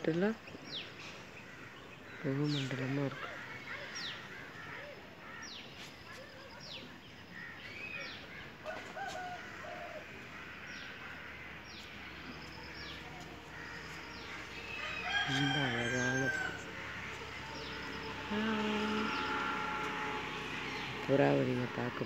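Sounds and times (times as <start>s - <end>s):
small birds chirping: 0.0s - 21.8s
rooster crowing: 14.2s - 20.7s.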